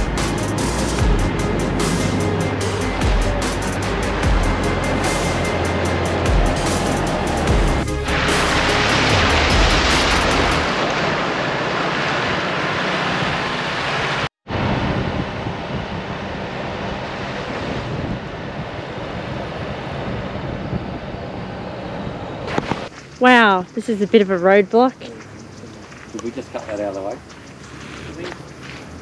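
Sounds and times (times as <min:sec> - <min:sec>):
background music: 0:00.0 - 0:10.8
vehicle driving on dirt trail: 0:00.0 - 0:29.0.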